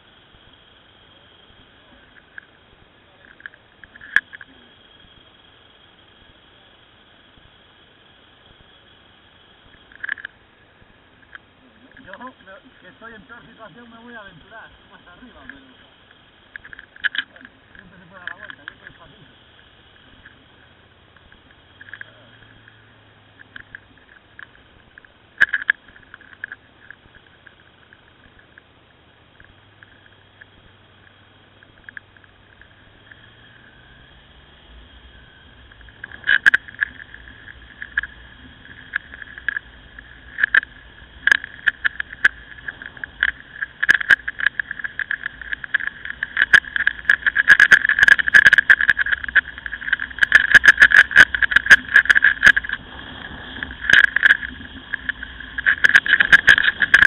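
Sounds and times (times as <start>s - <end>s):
motorcycle engine hum: 0.0s - 57.0s
sharp crackling and clicking: 0.0s - 57.0s.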